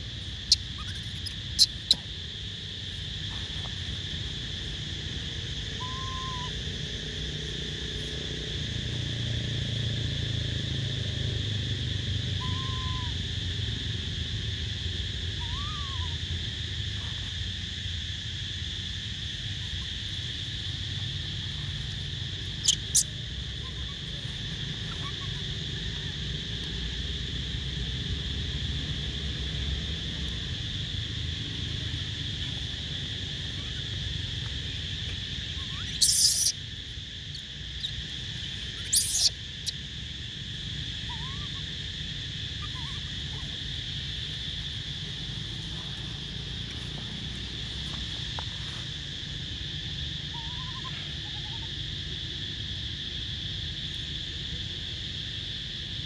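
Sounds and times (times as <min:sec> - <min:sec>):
faint short chirping calls: 0:00.0 - 0:02.1, 0:05.8 - 0:06.6, 0:21.5 - 0:25.4, 0:35.6 - 0:36.6, 0:37.3 - 0:39.8, 0:41.1 - 0:41.6
high-pitched insect chorus: 0:00.0 - 0:56.0.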